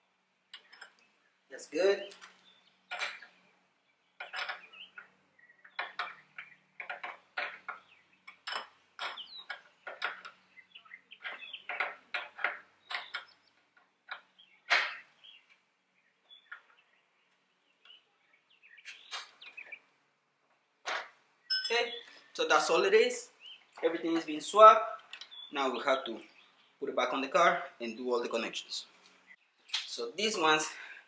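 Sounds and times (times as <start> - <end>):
wrench clinking on metal fitting: 21.5 - 21.9.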